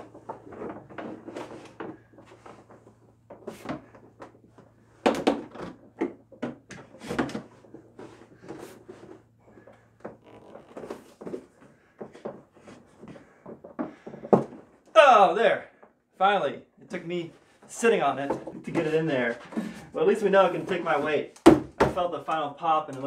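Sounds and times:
hollow plastic knocking and creaking: 0:00.0 - 0:15.0, 0:18.2 - 0:19.8.

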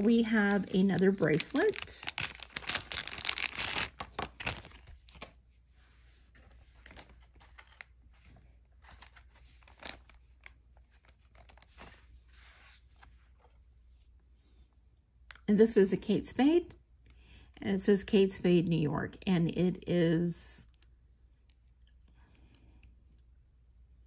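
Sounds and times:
packaging crinkling and tearing: 0:00.0 - 0:05.4, 0:06.8 - 0:07.9, 0:08.8 - 0:12.0.

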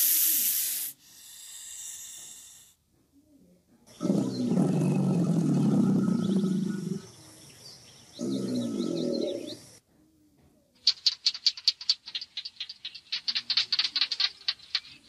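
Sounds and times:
crocodilian low growl: 0:03.9 - 0:07.3, 0:08.1 - 0:09.7.

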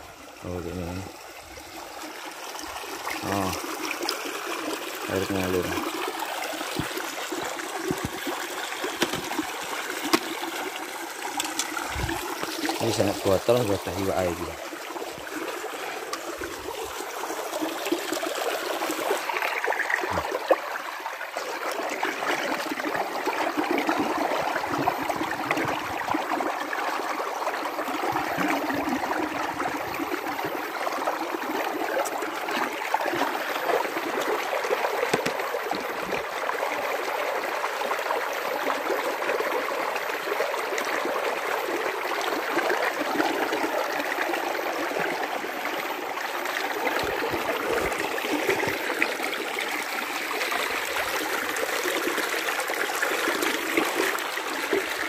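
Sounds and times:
stream running over rocks: 0:00.0 - 0:55.0.

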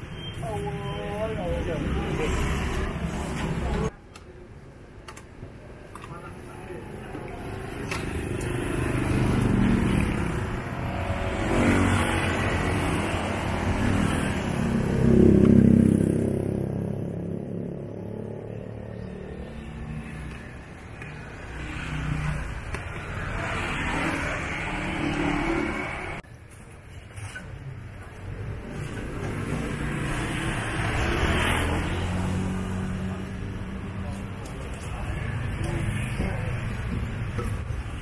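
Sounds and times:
vehicles passing on street: 0:00.0 - 0:38.0.

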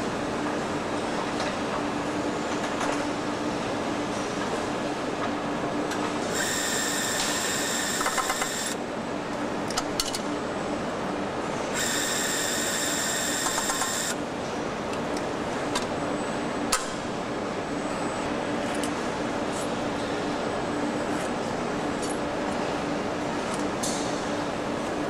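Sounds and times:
assembly-line machinery running: 0:06.3 - 0:08.8, 0:11.8 - 0:14.2
high-pitched machine whine: 0:06.3 - 0:08.8, 0:11.7 - 0:14.2.

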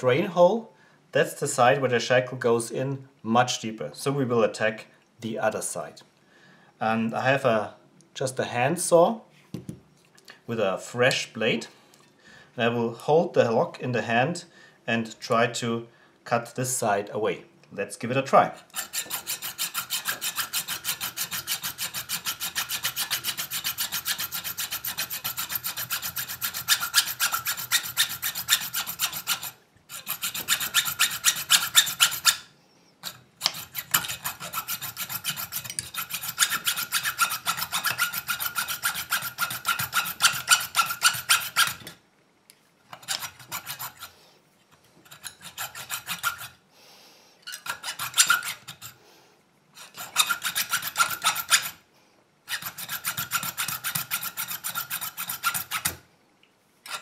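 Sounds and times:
hacksaw cutting metal: 0:18.6 - 0:42.0, 0:42.9 - 0:44.1, 0:45.0 - 0:46.6, 0:47.4 - 0:49.0, 0:49.8 - 0:51.8, 0:52.5 - 0:56.0.

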